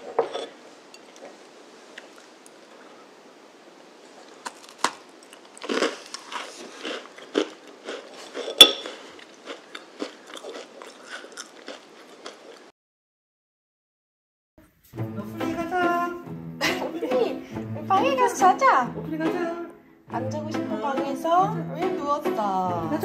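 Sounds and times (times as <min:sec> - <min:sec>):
cookie crunching: 0:04.2 - 0:12.7.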